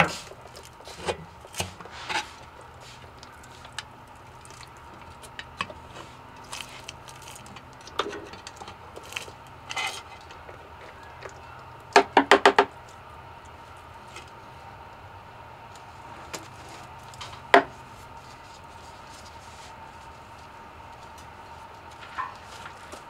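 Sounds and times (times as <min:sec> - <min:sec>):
oil draining: 0:00.0 - 0:11.7.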